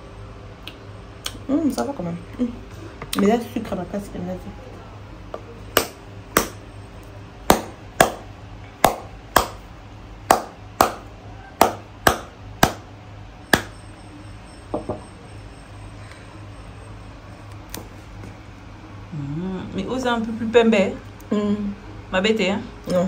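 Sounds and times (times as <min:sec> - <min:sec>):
knocks cracking fruit shell: 0:05.3 - 0:06.6, 0:07.5 - 0:09.6, 0:10.3 - 0:12.9, 0:13.5 - 0:13.8.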